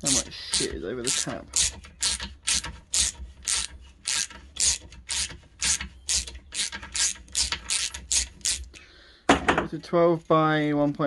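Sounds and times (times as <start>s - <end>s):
ratchet handle clicking: 0.0s - 8.8s.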